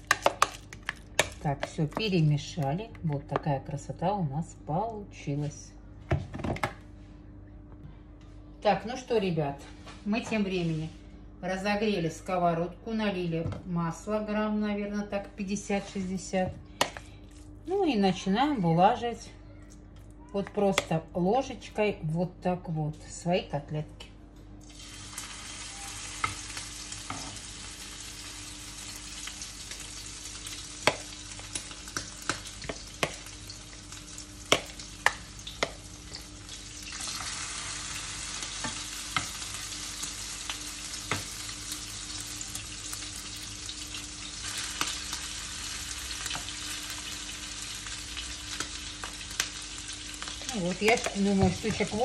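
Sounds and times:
patties sizzling in frying pan: 24.7s - 52.0s.

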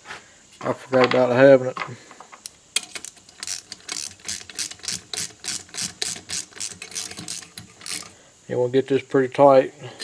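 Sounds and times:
ratchet wrench clicking: 2.4s - 8.2s.

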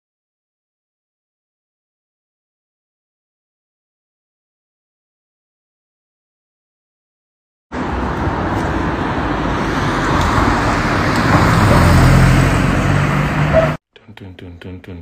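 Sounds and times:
engine hum: 7.7s - 13.8s
passing traffic: 7.7s - 13.8s.

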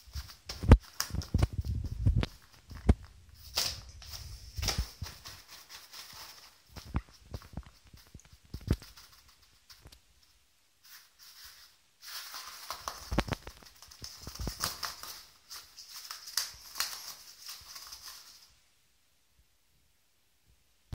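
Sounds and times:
toilet paper rustling: 0.0s - 18.6s.

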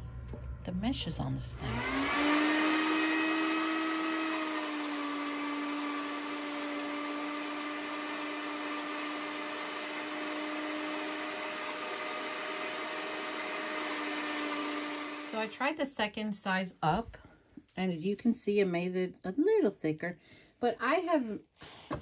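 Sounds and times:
electric grinder motor whine: 1.5s - 15.6s.

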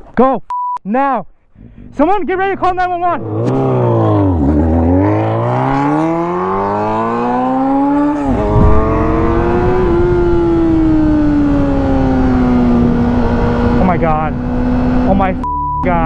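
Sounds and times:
motorcycle engine revving: 3.1s - 15.4s
wind rushing over microphone: 8.1s - 15.2s.

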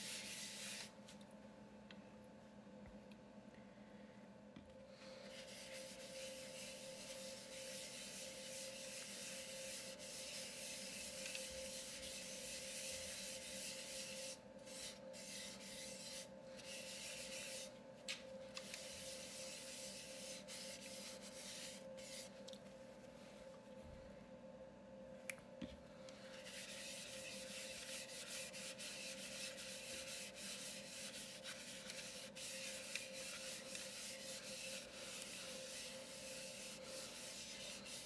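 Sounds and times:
steady low hum: 0.0s - 38.0s
cloth rubbing wooden bowl: 5.2s - 17.7s, 18.6s - 22.4s, 26.3s - 38.0s.

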